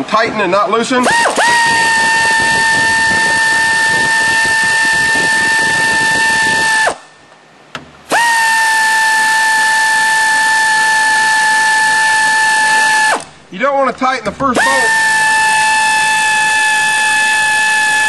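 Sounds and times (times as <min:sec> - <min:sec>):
air tool whining: 0:01.0 - 0:07.2, 0:08.1 - 0:13.4, 0:14.5 - 0:18.0.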